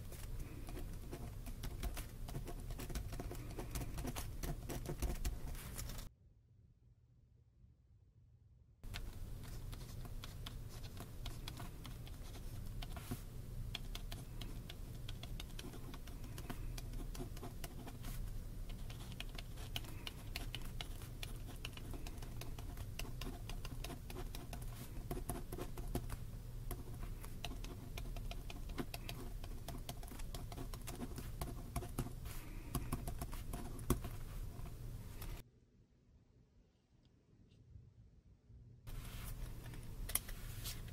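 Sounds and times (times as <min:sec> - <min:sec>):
steady low hum: 0:00.0 - 0:35.4
pen scratching on paper: 0:00.1 - 0:06.0, 0:13.8 - 0:34.8.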